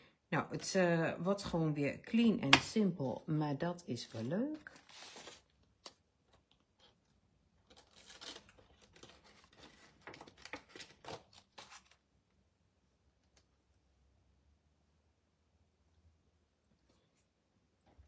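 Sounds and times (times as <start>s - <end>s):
plastic sheet crinkling and clicks: 7.6s - 11.9s.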